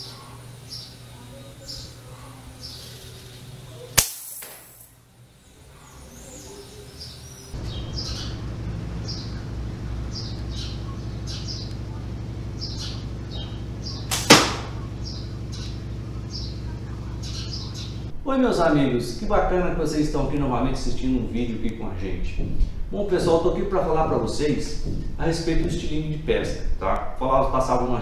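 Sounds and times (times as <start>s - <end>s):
small birds chirping: 0.0s - 4.0s, 4.8s - 18.1s
slingshot rifle snaps: 3.9s - 4.9s, 14.1s - 14.7s.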